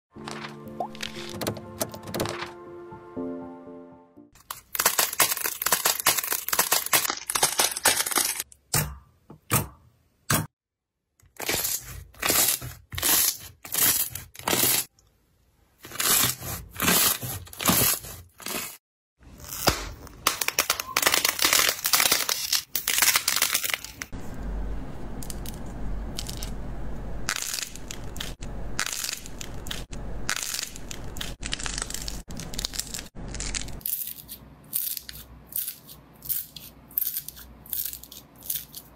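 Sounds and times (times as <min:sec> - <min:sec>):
clay slime cracking and tearing: 0:04.4 - 0:08.4, 0:19.4 - 0:24.1, 0:27.3 - 0:38.9.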